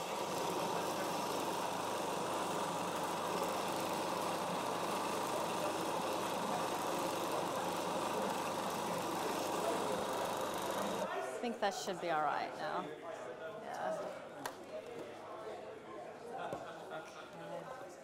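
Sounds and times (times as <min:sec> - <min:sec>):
blender motor running: 0:00.0 - 0:11.1.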